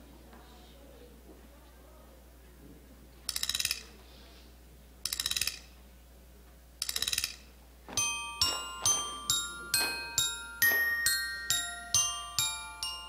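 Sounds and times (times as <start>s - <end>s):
glockenspiel-like dance music: 8.0s - 13.0s.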